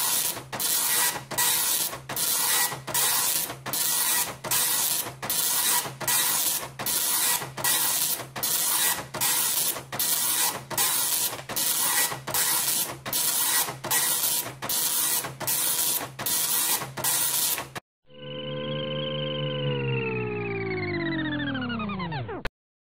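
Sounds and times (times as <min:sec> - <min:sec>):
dot matrix printer printing: 0:00.0 - 0:17.8.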